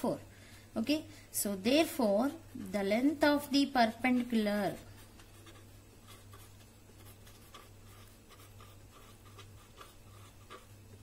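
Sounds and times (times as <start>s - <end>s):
steady low hum: 0.0s - 11.0s
marker scratching on paper: 3.7s - 11.0s.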